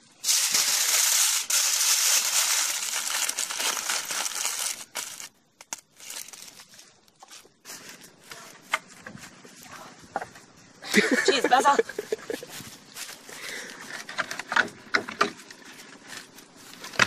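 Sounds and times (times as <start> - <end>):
aluminium foil crinkling: 0.2 - 8.7.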